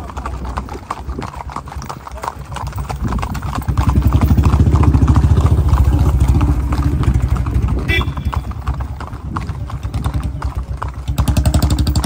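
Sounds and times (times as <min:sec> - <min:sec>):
horse hooves clip-clopping on road: 0:00.0 - 0:12.0
vehicle engine pulsing: 0:03.2 - 0:12.0.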